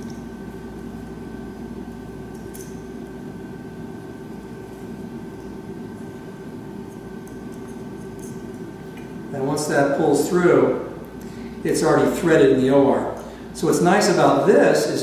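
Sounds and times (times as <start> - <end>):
electrical room hum: 0.0 - 15.0.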